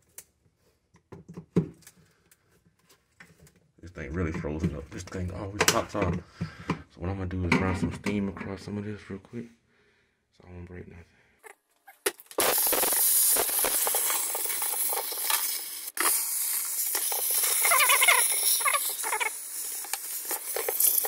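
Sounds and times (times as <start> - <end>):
steamer hissing steam: 12.4 - 21.0.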